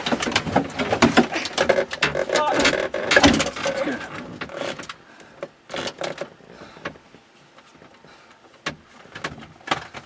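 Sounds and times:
plastic dashboard knocking and scraping: 0.0 - 4.9.

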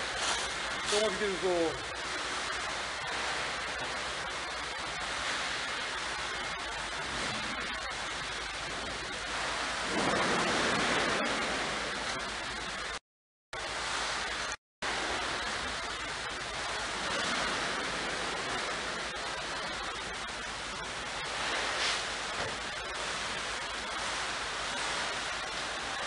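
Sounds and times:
running water and aeration: 0.0 - 26.0.

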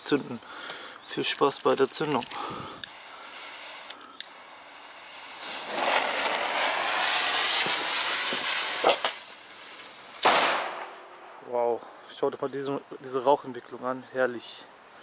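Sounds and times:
fuse crackles: 0.0 - 11.9
firework fuse hissing: 1.2 - 11.4
firecracker bang: 5.2 - 11.5.

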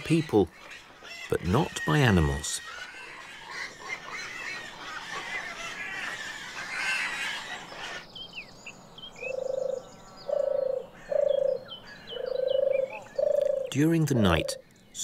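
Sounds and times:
small birds chirping: 0.0 - 15.0
dove purring: 12.2 - 14.6.

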